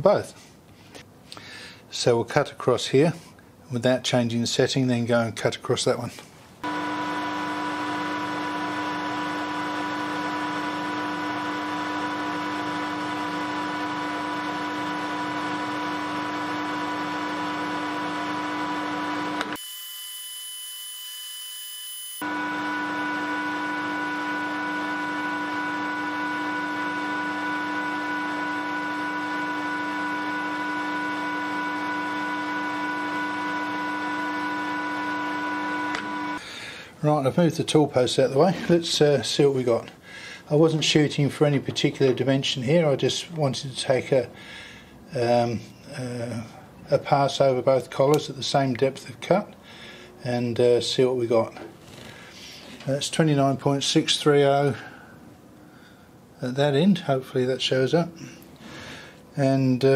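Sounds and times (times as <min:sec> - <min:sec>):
metal lathe whining: 0:06.6 - 0:36.4.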